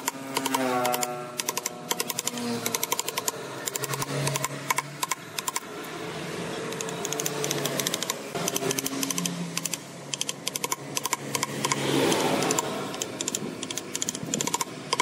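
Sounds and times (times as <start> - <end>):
rapid light clicking: 6.7 - 15.0.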